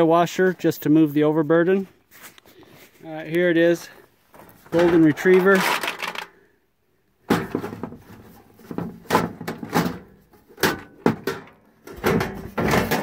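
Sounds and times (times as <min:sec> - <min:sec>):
metal knocks and clatters: 0:07.2 - 0:13.0.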